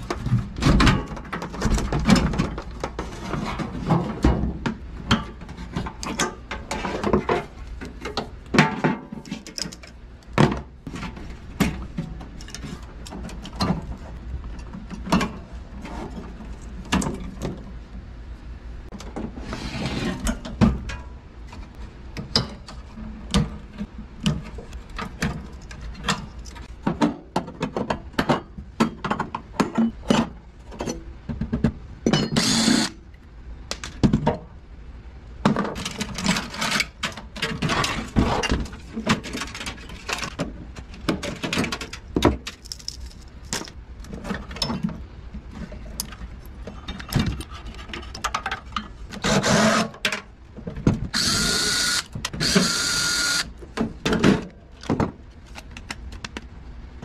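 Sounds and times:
cordless drill whine: 32.4s - 32.9s, 51.2s - 53.5s.

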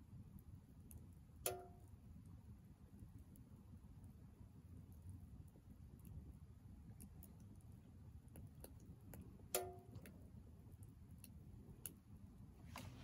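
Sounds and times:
firewood crackling in a stove: 0.0s - 13.0s
wood fire pop: 1.4s - 1.8s, 9.5s - 10.2s.

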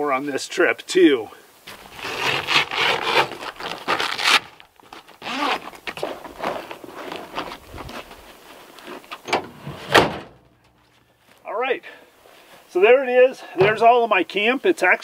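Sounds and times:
camper shell hatch rustling and scraping: 1.7s - 10.4s, 13.6s - 14.0s
tailgate clunk: 9.2s - 10.4s.

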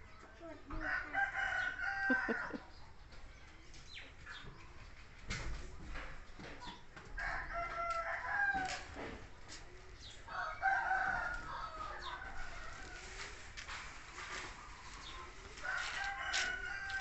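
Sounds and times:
rooster crowing: 0.8s - 2.6s, 10.3s - 13.1s, 15.6s - 17.0s.

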